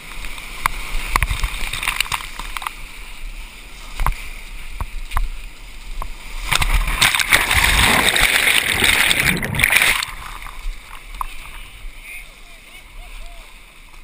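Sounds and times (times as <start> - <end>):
water washing over camera: 0.0 - 11.7
whitewater rushing and splashing: 0.0 - 14.0.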